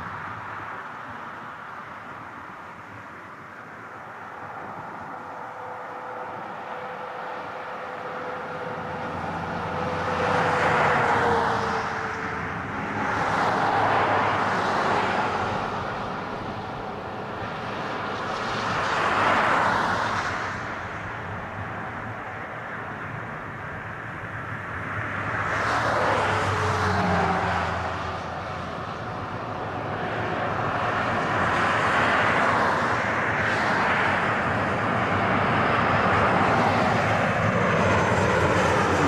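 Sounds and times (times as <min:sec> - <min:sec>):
jet engine roar: 0:01.0 - 0:39.0.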